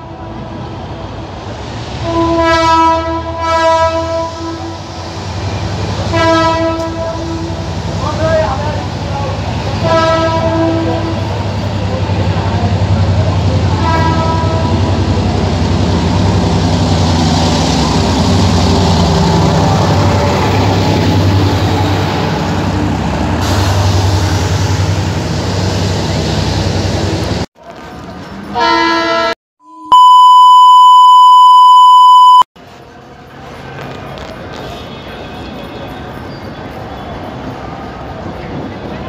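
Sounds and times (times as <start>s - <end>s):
diesel train running: 0.0s - 29.3s
horn-like tone: 28.6s - 32.4s
high-pitched beep: 29.6s - 32.5s.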